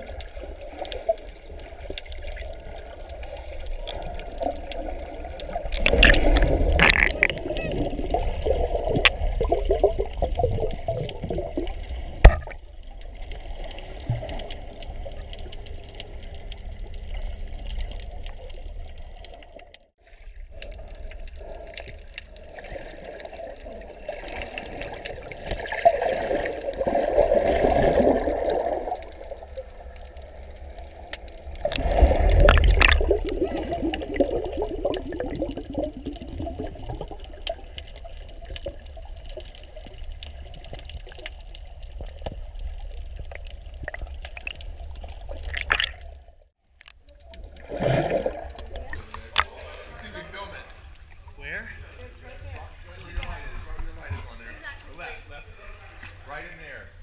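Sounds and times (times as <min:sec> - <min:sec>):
muffled underwater sloshing: 0:00.0 - 0:54.7.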